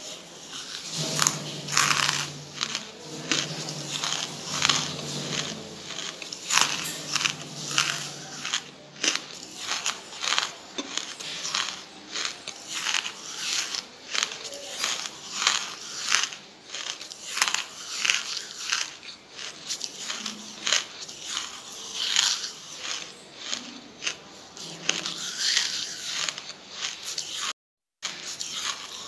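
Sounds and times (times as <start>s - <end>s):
person crunching charcoal: 0.0s - 29.0s.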